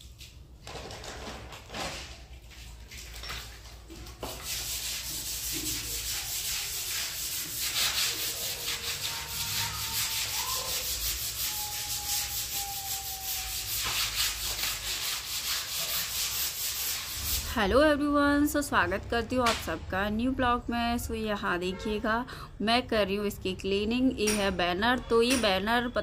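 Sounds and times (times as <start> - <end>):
brush scrubbing wet plastic: 1.6 - 17.6.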